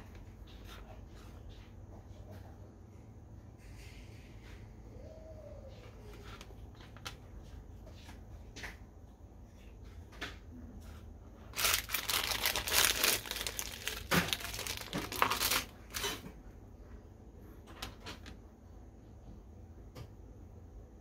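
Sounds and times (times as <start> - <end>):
plastic bag crinkling: 11.5 - 16.2.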